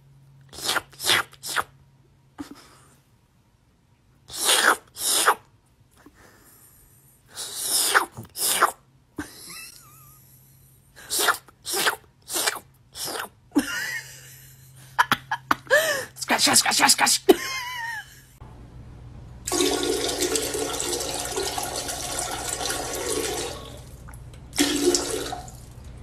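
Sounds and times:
person sneezing: 0:04.3 - 0:05.4, 0:07.4 - 0:08.8.

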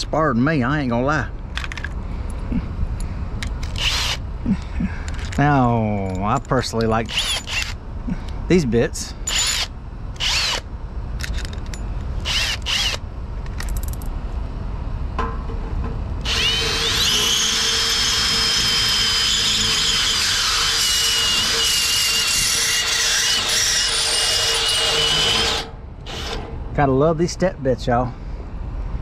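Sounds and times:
drill cutting through metal: 0:03.8 - 0:04.2, 0:07.1 - 0:07.8, 0:09.3 - 0:10.6, 0:12.2 - 0:13.0, 0:16.2 - 0:26.5.

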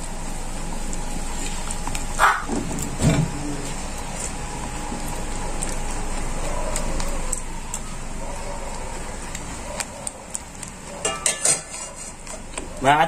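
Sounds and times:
whisk stirring thick sauce: 0:11.1 - 0:12.6.

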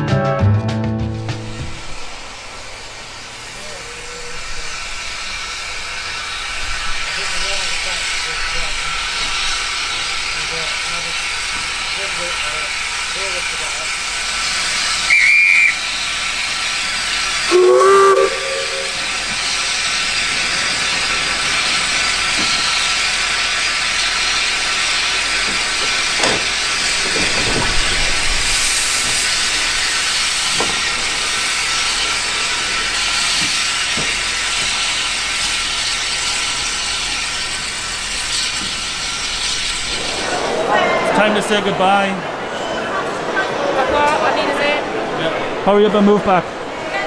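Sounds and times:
steam hissing: 0:01.4 - 0:43.4
shrill locomotive whistle: 0:15.0 - 0:15.9, 0:17.4 - 0:19.6
steam whistle: 0:15.0 - 0:15.9, 0:17.4 - 0:19.4.

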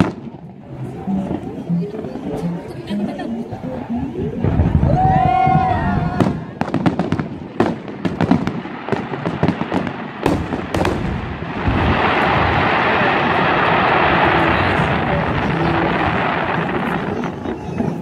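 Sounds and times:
firework bangs and cracks: 0:00.0 - 0:00.5, 0:06.0 - 0:18.0
firework crackling rush: 0:00.0 - 0:02.3, 0:03.8 - 0:18.0.

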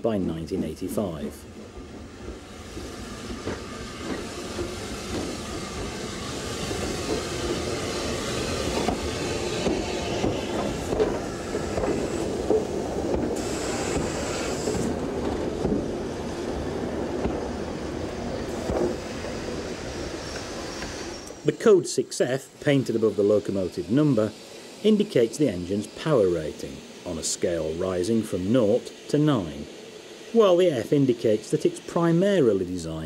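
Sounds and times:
train wheels on rails: 0:00.0 - 0:21.9.

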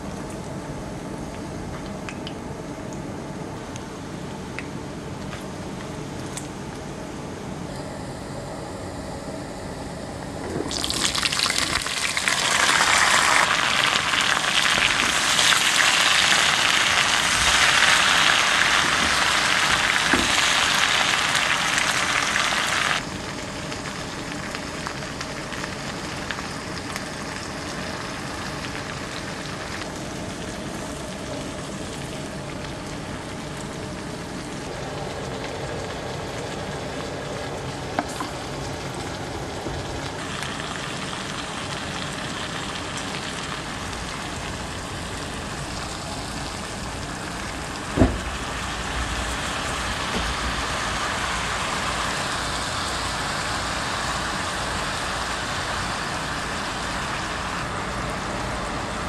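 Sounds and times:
food sizzling in hot oil: 0:10.5 - 0:38.9, 0:39.9 - 0:58.7.

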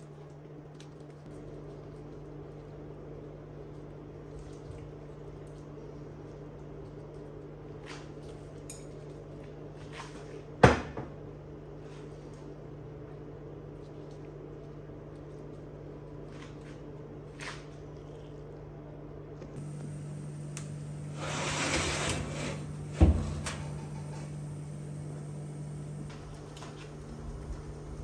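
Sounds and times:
steady low hum: 0:18.0 - 0:28.0
baking tray scraping: 0:19.6 - 0:26.1
oven door thud: 0:19.6 - 0:26.1.

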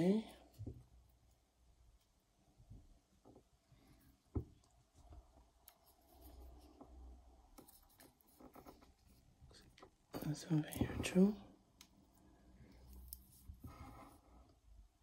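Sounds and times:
watch strap rustling: 0:12.7 - 0:13.6.

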